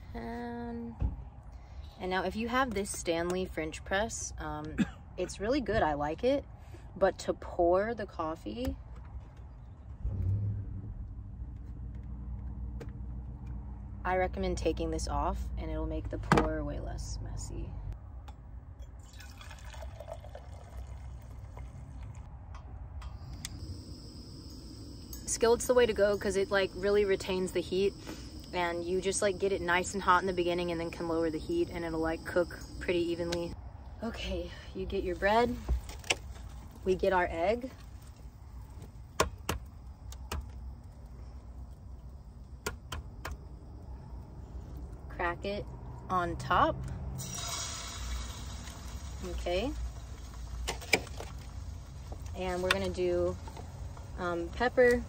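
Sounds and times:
low steady hum: 13.5s - 39.0s, 39.6s - 55.0s
coffee pouring into a cup: 19.0s - 22.3s.

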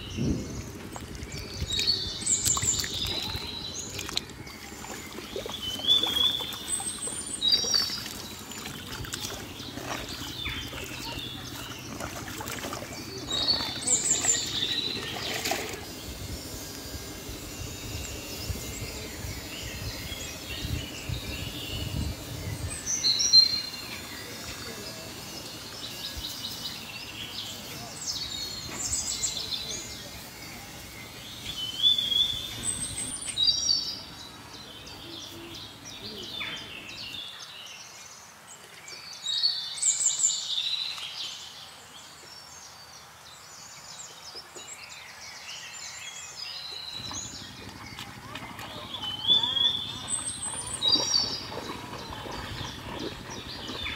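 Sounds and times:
birds chirping and trilling: 0.0s - 53.9s
low background rumble: 47.0s - 53.9s.

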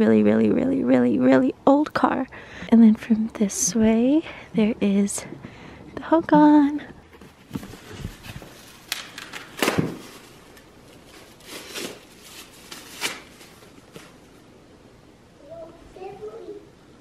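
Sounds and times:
plastic bag rustling: 7.1s - 14.4s.

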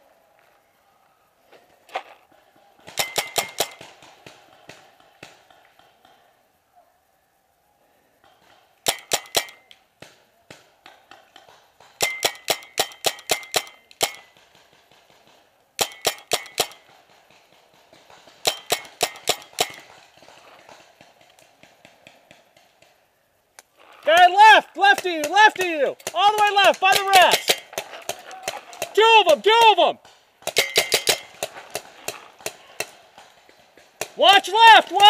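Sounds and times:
paintball marker shots: 2.8s - 6.2s, 8.4s - 22.9s, 30.0s - 34.2s.

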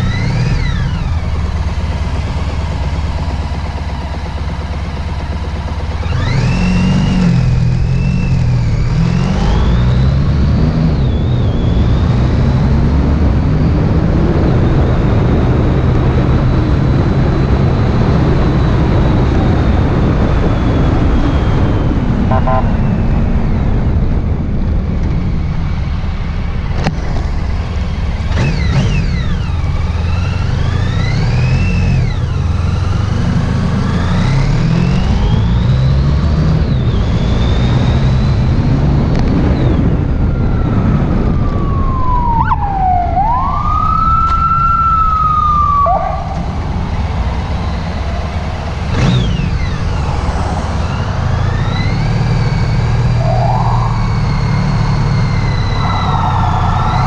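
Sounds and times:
sirens wailing: 0.0s - 24.2s, 28.0s - 57.0s
motorcycle engine running: 0.0s - 42.2s, 44.4s - 57.0s
wind rush: 38.4s - 57.0s.

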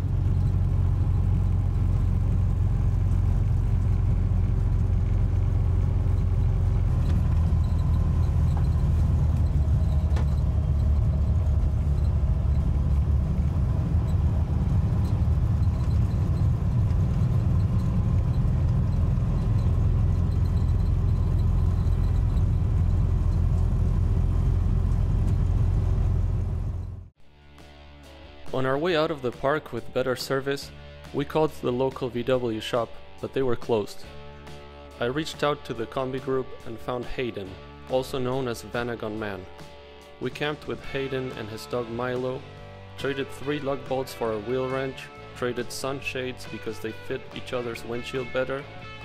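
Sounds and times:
engine running while driving: 0.0s - 27.2s, 40.5s - 49.0s
road noise: 0.0s - 27.2s, 36.6s - 49.0s.

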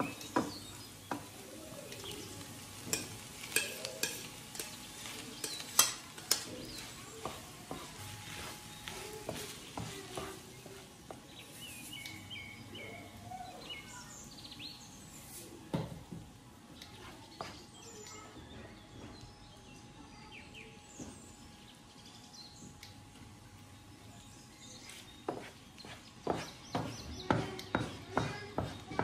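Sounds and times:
rice and egg sizzling in pan: 0.0s - 18.5s
wooden spoon knocking pan: 26.2s - 29.0s.

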